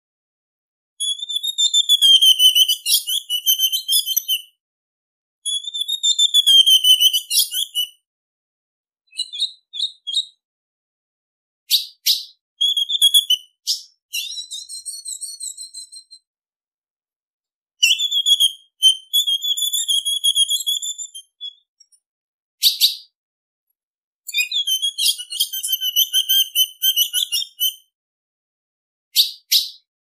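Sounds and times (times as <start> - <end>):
high bird chirps: 1.0 - 4.5, 5.5 - 8.0, 9.1 - 10.4, 11.7 - 16.3, 17.8 - 22.0, 22.6 - 23.1, 24.3 - 27.9, 29.2 - 29.9.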